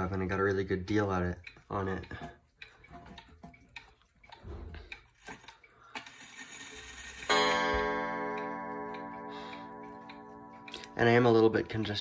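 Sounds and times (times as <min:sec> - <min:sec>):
wall clock ticking: 0:00.0 - 0:12.0
clock striking a ringing note: 0:06.9 - 0:12.0.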